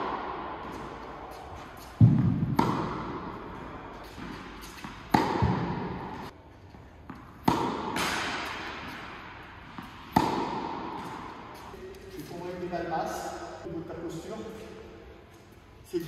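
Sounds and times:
racket hitting tennis ball: 0.0s - 6.4s, 7.0s - 12.6s
tennis balls bouncing on court: 0.0s - 12.4s.

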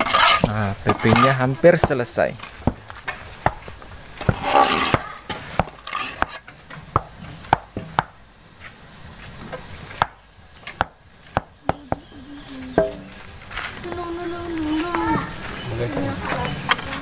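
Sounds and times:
soil scraping: 0.0s - 7.5s.

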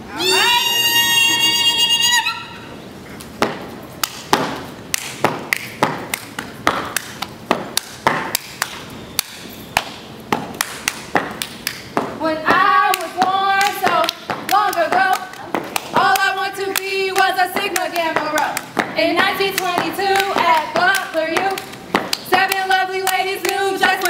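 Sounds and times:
high held vocal call: 0.0s - 2.9s
stomps on concrete: 3.4s - 8.8s, 9.8s - 12.6s
hand claps: 3.4s - 24.0s
voices chanting together: 12.2s - 24.0s.

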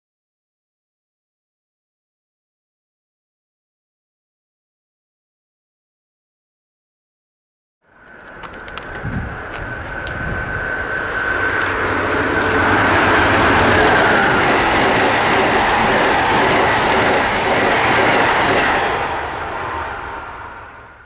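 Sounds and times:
steady high whine: 7.9s - 21.0s
train wheels rushing on rail: 8.0s - 21.0s.

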